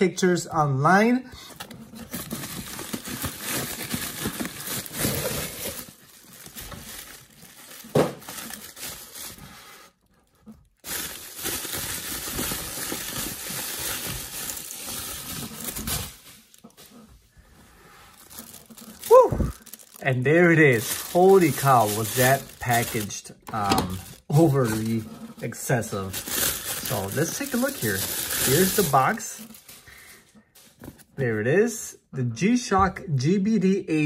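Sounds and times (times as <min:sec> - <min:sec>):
bubble wrap crinkling: 0:01.5 - 0:17.2, 0:17.9 - 0:31.1
cardboard tearing: 0:01.6 - 0:09.5, 0:10.8 - 0:16.6, 0:18.2 - 0:20.0, 0:20.7 - 0:25.1, 0:25.9 - 0:29.7.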